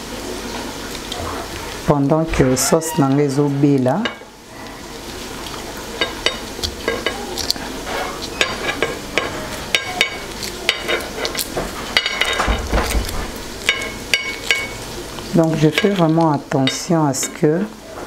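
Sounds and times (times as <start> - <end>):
sauce sizzling in a pan: 0.0 - 17.9
eggshells cracking: 5.1 - 16.2.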